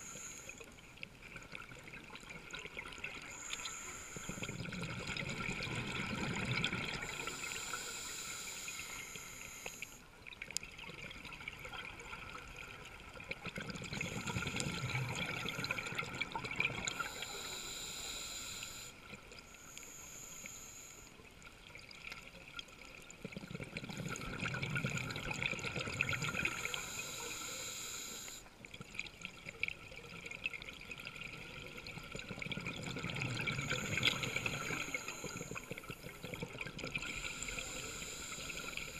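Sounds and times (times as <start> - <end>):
regulator air hiss: 0.0 - 0.7, 3.3 - 4.5, 7.0 - 10.0, 16.9 - 21.2, 26.2 - 28.5, 33.6 - 36.2, 37.0 - 38.9
underwater exhaled bubbles: 0.0 - 19.8, 21.2 - 38.9.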